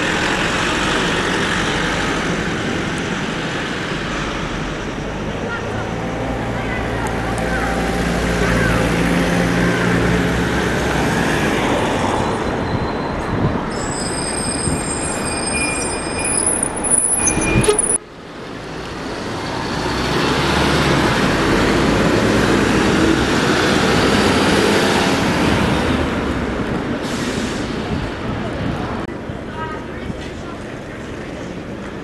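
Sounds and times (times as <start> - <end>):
buses passing: 0.0 - 32.0
brakes squealing: 11.7 - 18.0.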